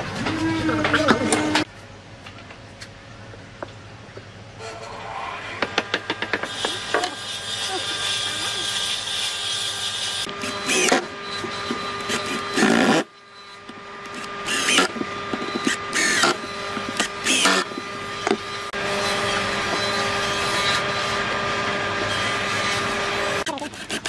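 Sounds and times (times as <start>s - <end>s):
electric drill whirring: 6.4s - 13.1s, 14.1s - 21.2s.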